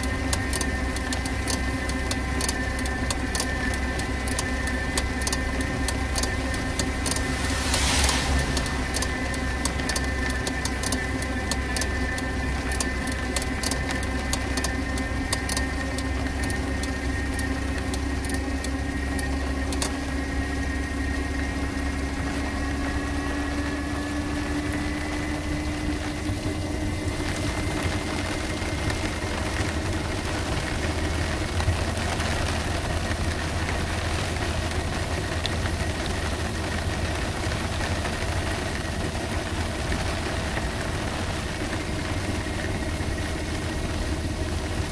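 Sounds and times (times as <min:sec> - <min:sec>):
rain and wet road hiss: 0:00.0 - 0:44.9
electric motor whine: 0:03.4 - 0:12.2
low rumble: 0:03.8 - 0:14.2.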